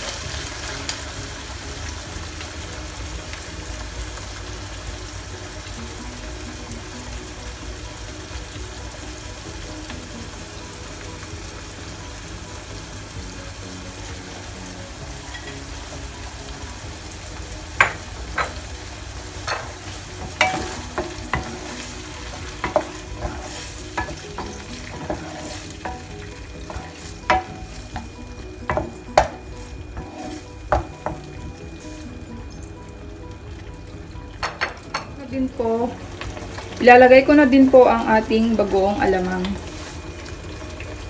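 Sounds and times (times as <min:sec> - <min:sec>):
meat sizzling in a wok: 0:00.0 - 0:41.0
wooden spatula scraping pan: 0:19.5 - 0:28.1, 0:28.7 - 0:31.3.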